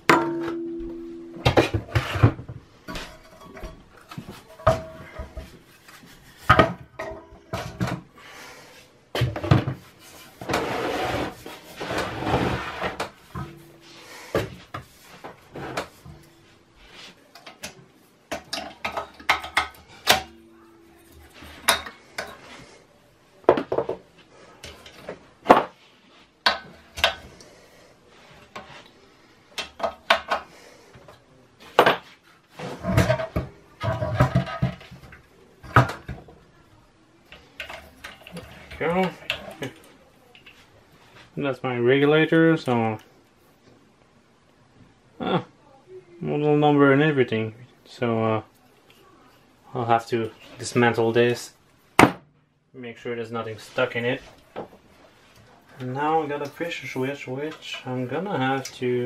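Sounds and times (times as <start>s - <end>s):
metal tools clinking and knocking: 2.9s - 5.5s.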